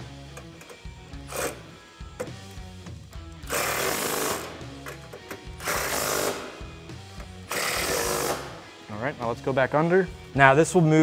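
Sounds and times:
background music: 0.0s - 11.0s
impact wrench bursts: 3.5s - 4.6s, 5.6s - 6.7s, 7.5s - 8.6s.

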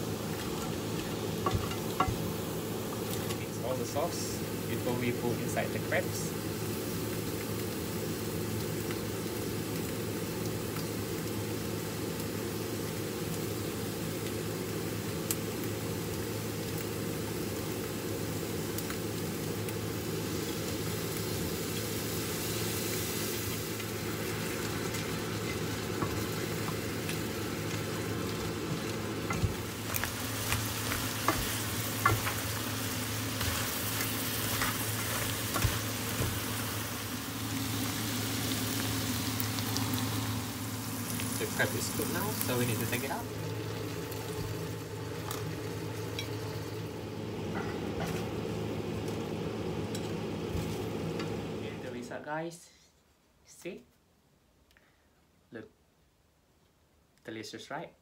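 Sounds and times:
crabs sizzling in a frying pan: 0.0s - 52.5s
spatula knocking and scraping pan: 1.4s - 2.2s, 30.4s - 32.5s, 34.5s - 36.5s.

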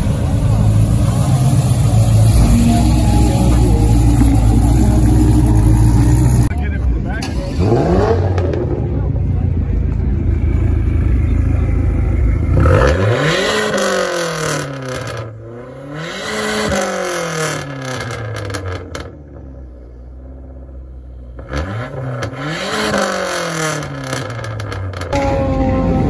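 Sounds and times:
engine idling: 0.0s - 7.4s, 8.9s - 12.6s
car engine revving: 0.0s - 26.0s.

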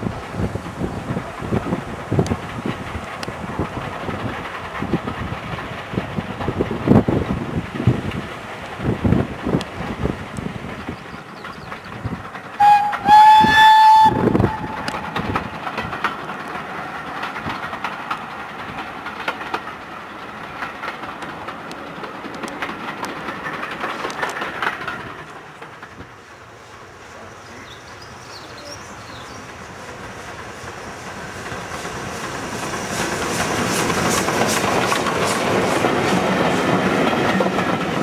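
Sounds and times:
train rumbling and clicking: 0.0s - 38.0s
locomotive exhaust chuffs: 10.5s - 15.7s
steam locomotive whistle: 12.6s - 15.2s.

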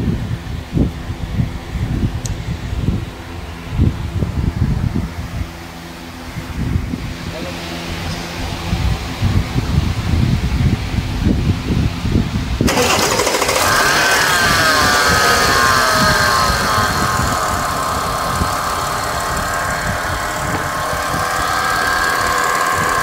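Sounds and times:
car engine starting and idling: 12.6s - 23.0s
drive belt turning over pulleys: 12.6s - 23.0s.

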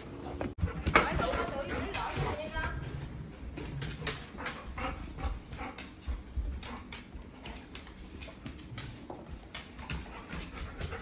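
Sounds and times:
dog claws clicking on tile: 3.6s - 11.0s.

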